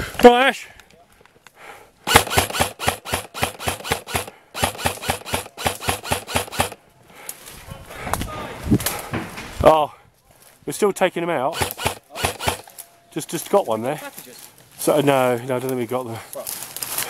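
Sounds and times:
airsoft gun firing: 2.1 - 6.8, 11.5 - 12.7.

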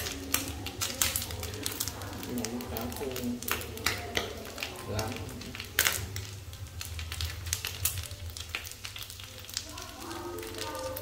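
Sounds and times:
crackles and pops of frying: 0.0 - 11.0
fish sizzling in oil: 0.0 - 11.0.

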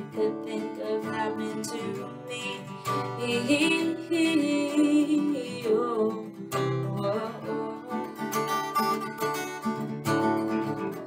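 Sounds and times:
woman singing wordless held line: 0.0 - 8.7
acoustic guitar strummed: 0.0 - 11.0.

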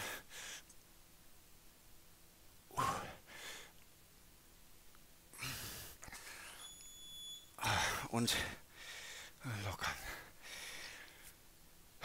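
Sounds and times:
man breathing heavily: 0.0 - 0.7, 2.7 - 3.8, 5.3 - 6.6, 7.6 - 11.4.

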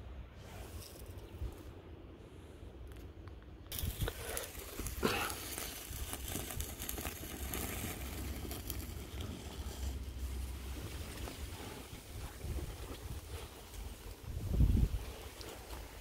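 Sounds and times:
sparkler fizzing and crackling: 3.7 - 14.2
wind rumble on microphone: 5.7 - 16.0.

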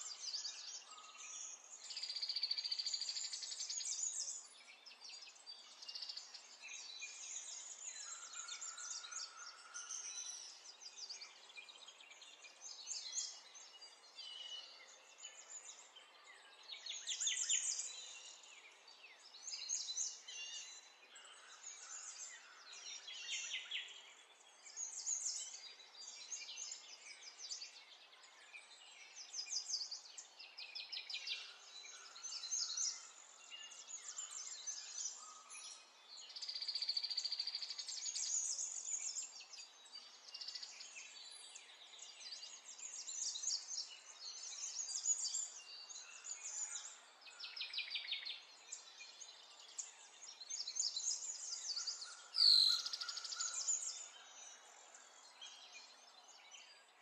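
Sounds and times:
birds singing trilled notes: 28.7 - 57.0.

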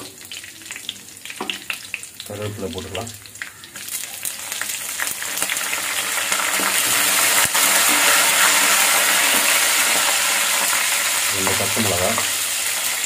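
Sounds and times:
leaves sizzling in hot oil: 0.0 - 13.0.

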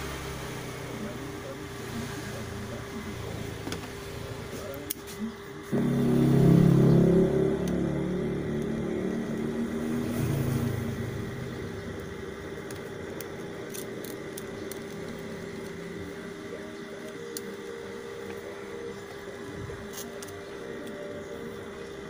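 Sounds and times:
steady low hum: 0.0 - 22.0
vehicle engine passing: 5.7 - 12.5.

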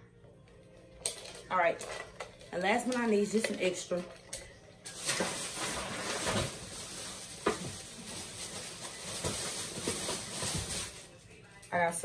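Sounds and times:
rustling and handling noise: 1.0 - 11.7.

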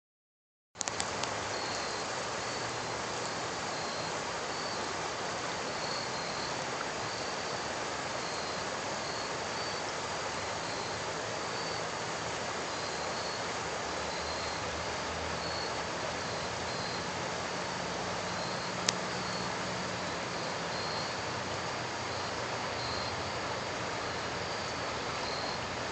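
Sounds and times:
river water rushing: 0.8 - 25.9
faint high chirp: 1.5 - 4.9, 5.7 - 12.1, 12.7 - 13.5, 14.1 - 14.7, 15.4 - 17.1, 18.3 - 21.3, 22.1 - 25.7.

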